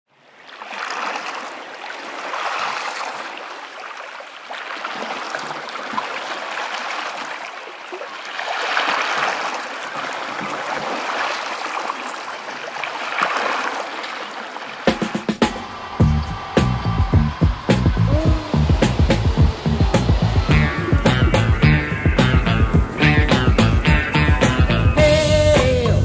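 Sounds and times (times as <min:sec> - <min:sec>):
small waves lapping at shore: 0:00.1 - 0:16.6, 0:17.6 - 0:23.4.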